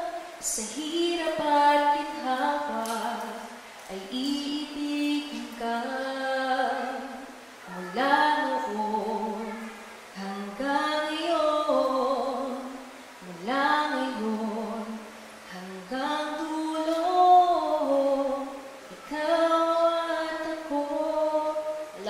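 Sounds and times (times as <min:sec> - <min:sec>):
woman singing unaccompanied: 0:00.0 - 0:22.0.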